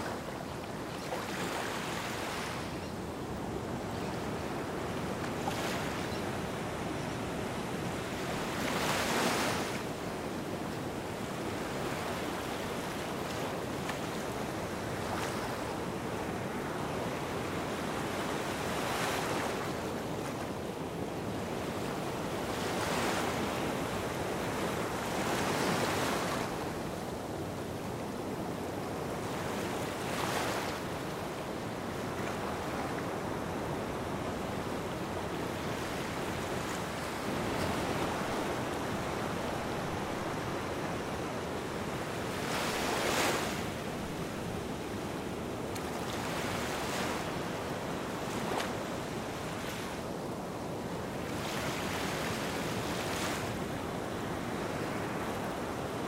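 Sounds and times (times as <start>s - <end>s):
waves washing onto sand: 29.8s - 56.0s.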